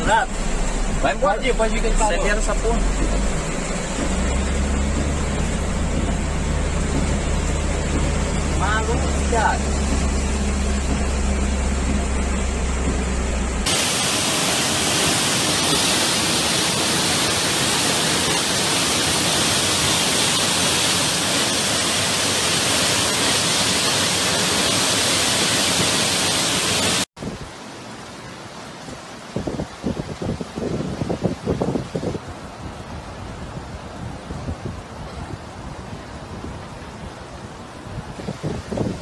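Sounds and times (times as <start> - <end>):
car engine rumble: 0.0 - 25.6
rushing water in downpour: 0.0 - 39.0.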